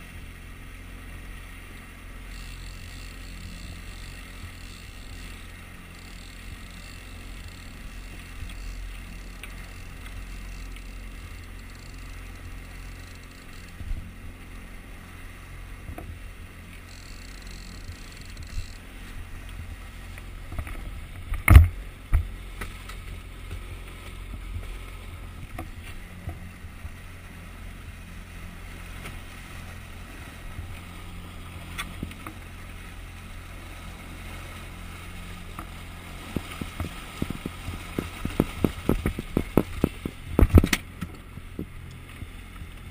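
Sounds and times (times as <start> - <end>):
boat wake splashing: 0.0 - 42.9
outboard motor running: 0.0 - 42.9.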